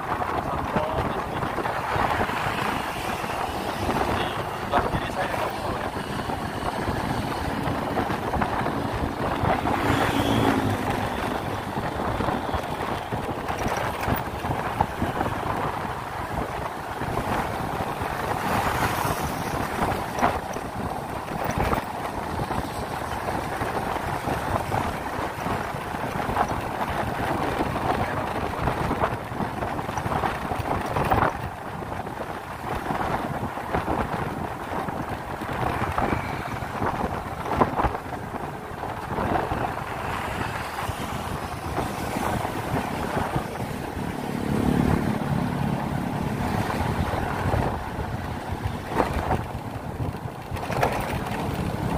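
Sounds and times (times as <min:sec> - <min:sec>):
tyre noise on road: 0:00.0 - 0:51.9
wind buffeting microphone: 0:00.0 - 0:51.9
passing engine: 0:00.4 - 0:31.4, 0:32.4 - 0:51.9
scooter engine running: 0:41.0 - 0:51.9.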